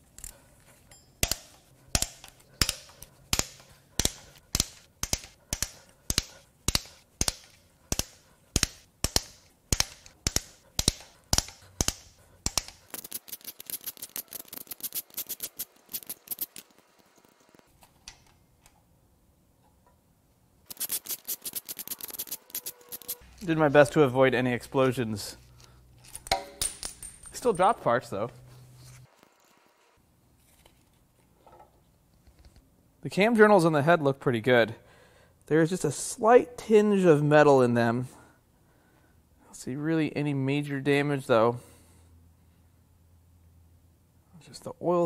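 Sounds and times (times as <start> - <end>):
ratchet wrench clicking: 1.2 - 16.6.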